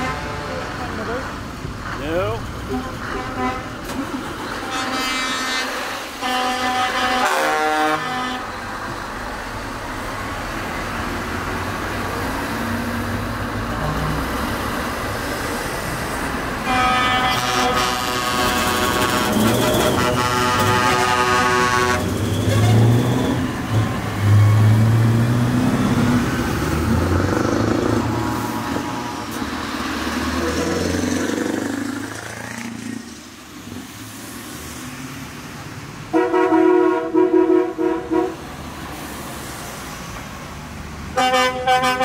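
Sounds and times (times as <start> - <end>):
truck horn blowing: 0.0 - 0.8, 2.7 - 3.8, 4.6 - 8.6, 16.6 - 23.3, 28.1 - 29.6, 36.1 - 38.4, 41.2 - 42.0
diesel lorry engine rumbling: 0.0 - 34.3.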